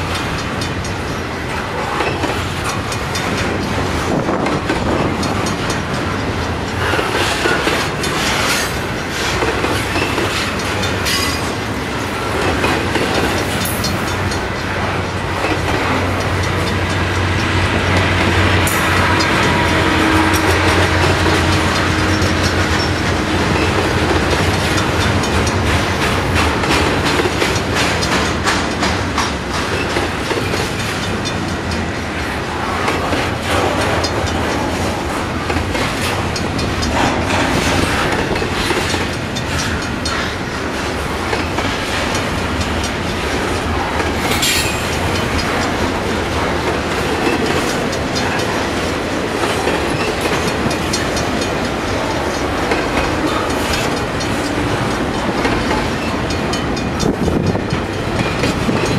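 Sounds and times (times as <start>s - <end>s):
clickety-clack over rail joints: 0.0s - 58.9s
steel wheels rumbling on rail: 0.0s - 58.9s.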